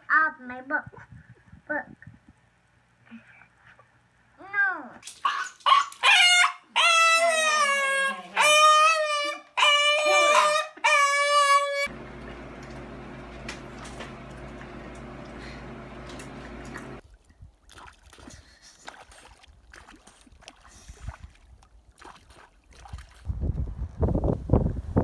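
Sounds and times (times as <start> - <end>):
water splashing and lapping: 5.0 - 6.1, 12.0 - 23.3
low hum with hiss: 11.9 - 17.0.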